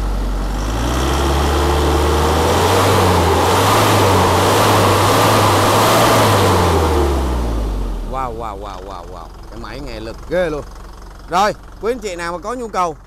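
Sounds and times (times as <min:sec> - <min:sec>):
diesel truck engine revving: 0:00.0 - 0:13.0.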